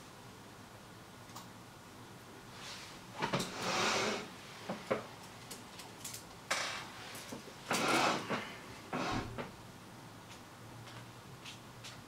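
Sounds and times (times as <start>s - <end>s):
rustling scrapes on workbench: 2.6s - 4.3s, 6.6s - 9.4s.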